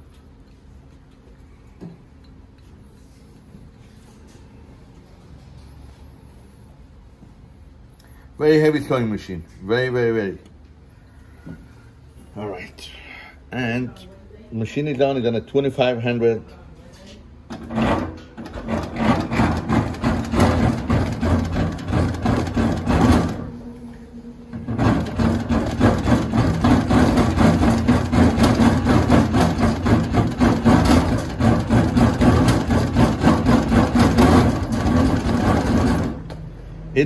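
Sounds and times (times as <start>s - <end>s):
sewing machine stitching: 17.5s - 23.6s, 24.6s - 36.3s
motor hum: 17.5s - 37.0s.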